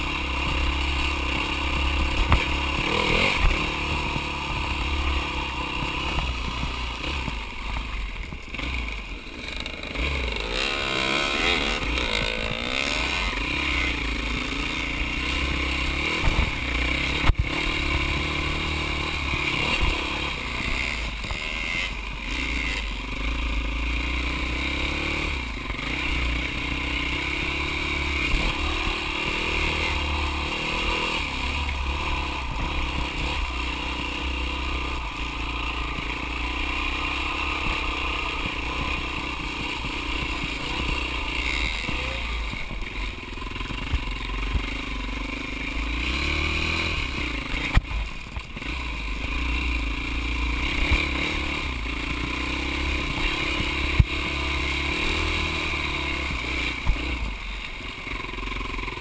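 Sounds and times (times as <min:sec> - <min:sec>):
dirt bike engine revving: 0:00.0 - 0:59.0.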